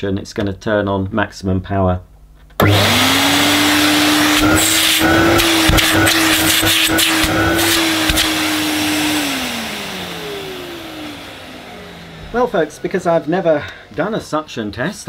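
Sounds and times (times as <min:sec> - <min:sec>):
vacuum cleaner running: 0:02.6 - 0:14.4.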